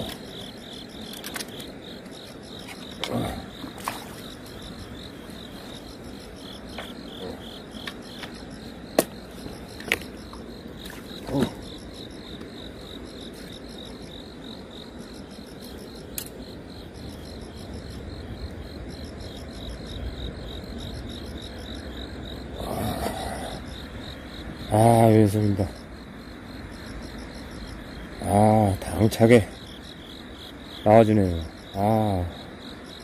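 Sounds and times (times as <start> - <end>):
insects chirping: 0.0 - 33.0.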